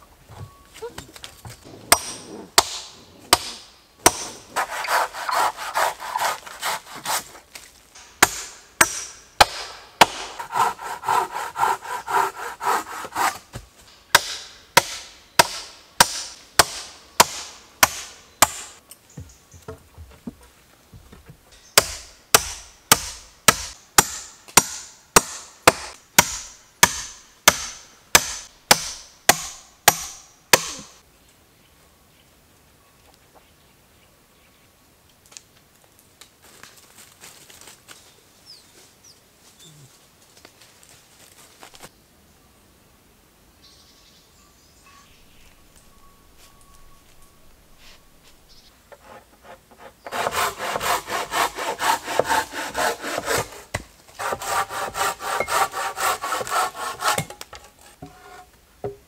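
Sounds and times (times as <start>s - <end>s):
rasping sawing sound: 1.8s - 7.4s, 10.1s - 13.5s, 48.9s - 58.4s.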